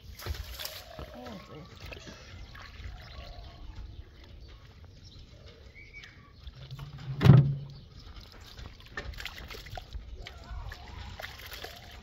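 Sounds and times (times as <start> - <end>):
water jug thumping on concrete: 6.7 - 7.9
hands sloshing rice in water: 8.0 - 12.0.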